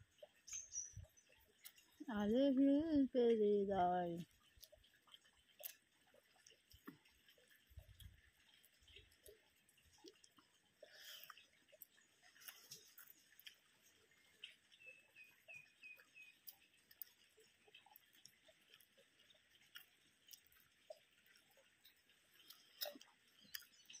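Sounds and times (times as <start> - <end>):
person chewing: 5.5 - 5.8, 6.4 - 14.0, 19.6 - 23.8.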